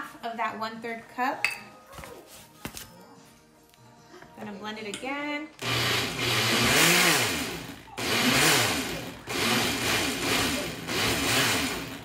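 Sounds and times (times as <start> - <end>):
blender motor running: 5.6 - 12.0.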